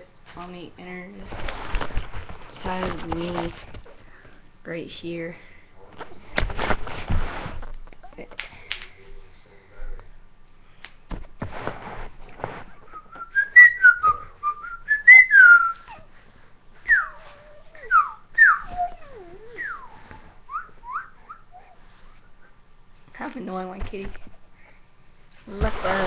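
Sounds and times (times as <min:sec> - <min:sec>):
rustling: 0:01.2 - 0:04.4, 0:06.0 - 0:08.1, 0:11.0 - 0:14.8
person whistling a tune: 0:12.9 - 0:15.9, 0:19.6 - 0:21.4.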